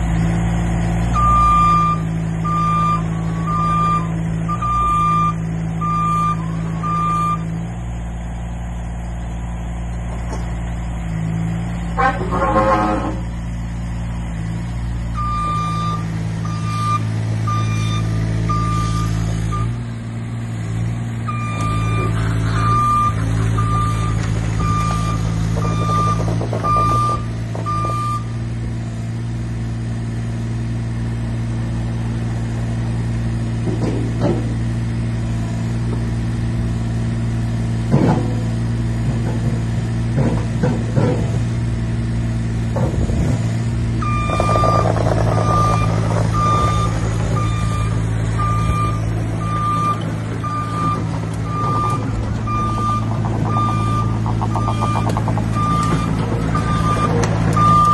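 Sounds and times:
excavator engine running: 0.0 - 57.9
travel alarm beeping: 15.2 - 19.7, 21.3 - 28.3, 44.0 - 44.8.

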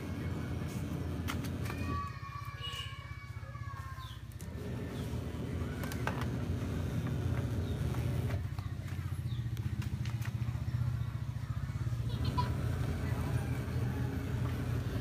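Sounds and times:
motor engine running: 0.0 - 2.0, 4.4 - 15.0.

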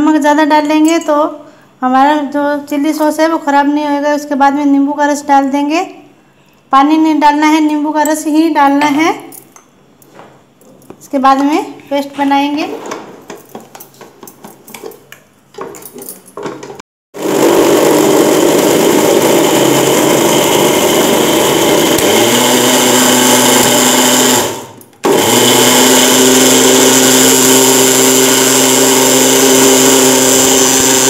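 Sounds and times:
mixer-grinder motor running: 17.2 - 31.0.

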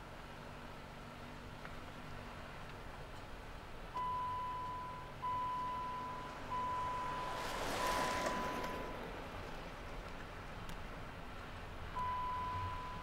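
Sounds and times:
passing vehicle rushing: 5.5 - 10.6.

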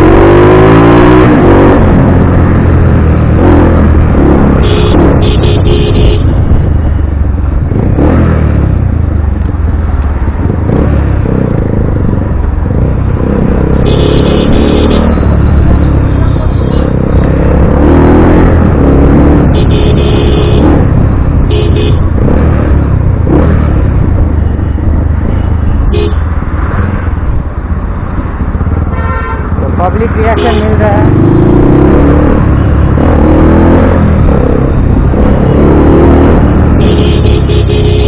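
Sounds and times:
motorcycle engine rumbling: 1.4 - 38.0
horn honks: 4.6 - 6.4, 13.8 - 15.2, 19.5 - 22.0, 25.9 - 26.2, 28.9 - 30.8, 36.8 - 38.0.

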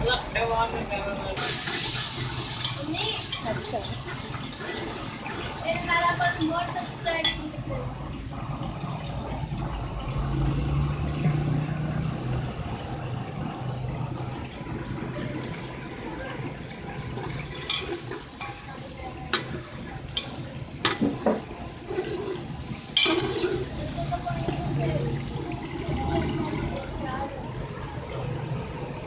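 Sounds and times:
onions sizzling in hot oil: 1.4 - 27.2.

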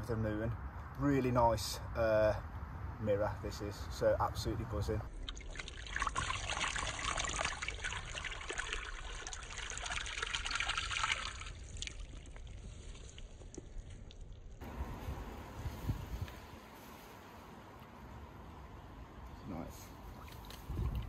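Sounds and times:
water trickling and pouring: 5.1 - 14.6.

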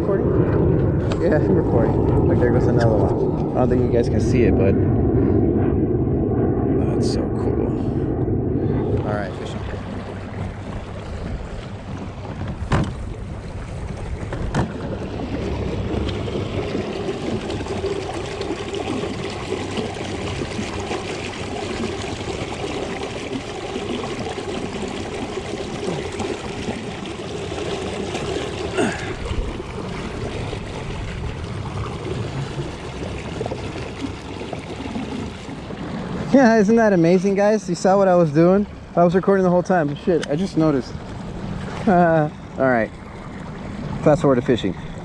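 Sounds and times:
water lapping against kayak hull: 8.0 - 45.0
knocks on hull: 12.0 - 13.1.

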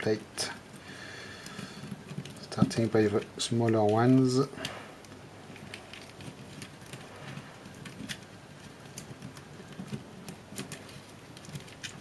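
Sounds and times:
small wires and connectors clicking: 0.0 - 12.0.

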